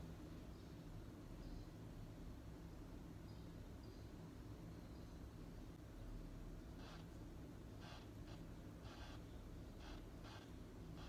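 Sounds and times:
quiet room hum: 0.0s - 11.0s
stylus scratching glass screen: 6.7s - 11.0s.

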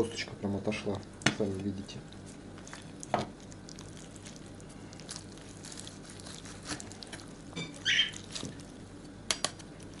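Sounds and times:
knife crackling through crisp skin: 5.0s - 10.0s.

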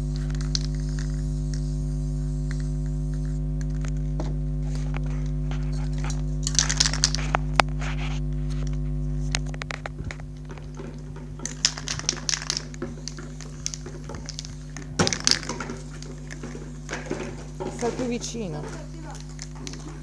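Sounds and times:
aerosol spray can hissing: 0.0s - 3.9s, 11.4s - 18.2s
steady low hum: 0.0s - 20.0s
spray can clicks: 11.4s - 15.8s.

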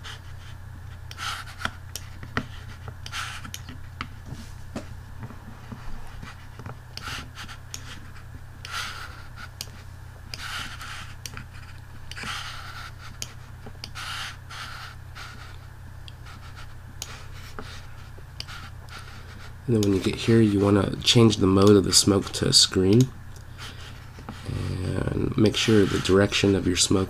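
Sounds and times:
steady low hum: 0.0s - 27.0s
soft breathing: 23.4s - 26.2s.

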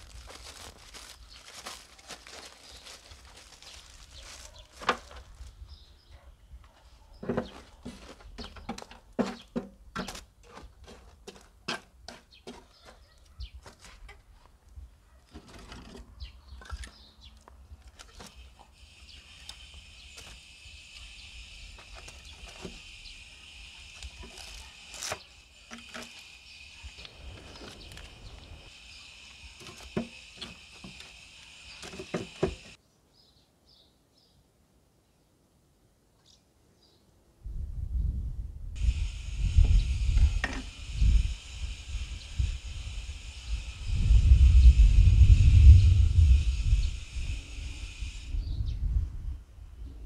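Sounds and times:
embers raked and logs laid: 0.0s - 5.6s, 7.2s - 32.8s
steady high hiss: 18.2s - 32.8s, 38.8s - 48.6s.

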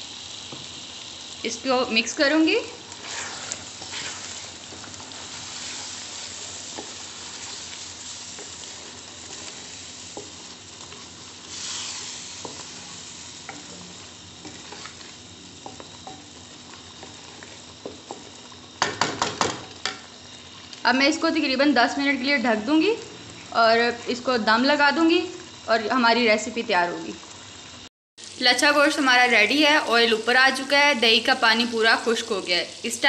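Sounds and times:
gravy sizzling in a pan: 0.0s - 33.0s
wooden spoon scraping a pan: 2.9s - 18.3s.

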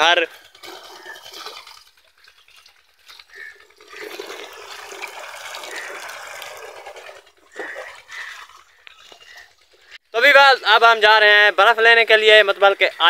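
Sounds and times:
water pouring into plastic tank: 0.0s - 10.0s.

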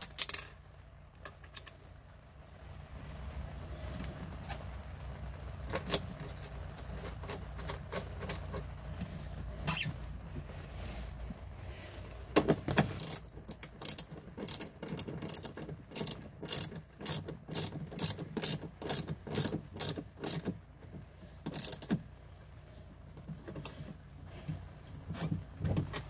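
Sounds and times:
ratchet wrench clicking: 13.0s - 20.6s, 21.4s - 22.0s.

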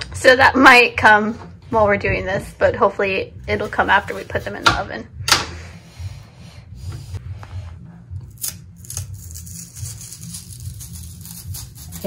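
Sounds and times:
knife scoring plantain peel: 8.3s - 12.0s.

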